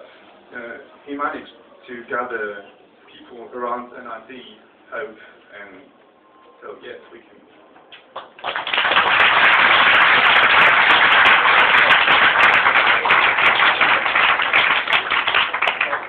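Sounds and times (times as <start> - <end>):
audience applause: 8.1 - 16.0.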